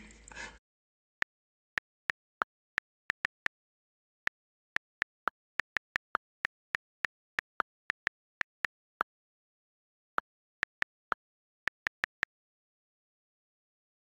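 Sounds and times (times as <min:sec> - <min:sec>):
phone keyboard clicks: 0:05.6 - 0:08.7, 0:10.6 - 0:12.4.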